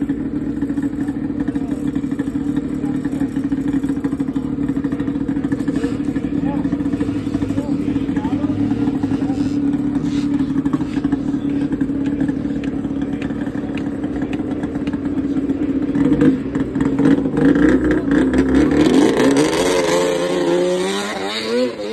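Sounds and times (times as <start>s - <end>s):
snowmobile engine revving: 5.4s - 11.8s, 16.0s - 21.9s.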